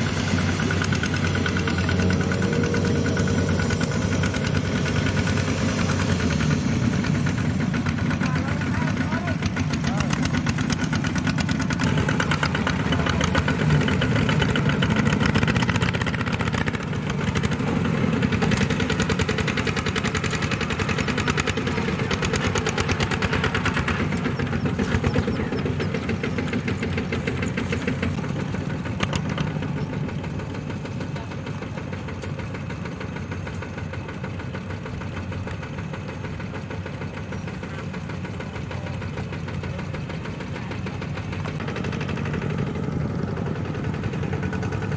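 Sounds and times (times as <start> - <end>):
diesel tractor engines running: 0.0 - 44.9.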